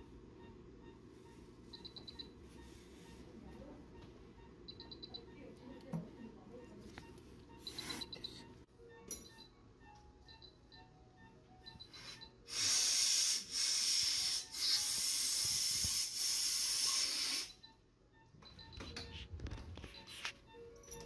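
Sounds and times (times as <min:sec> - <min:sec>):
compressed air hissing: 0:12.5 - 0:17.6.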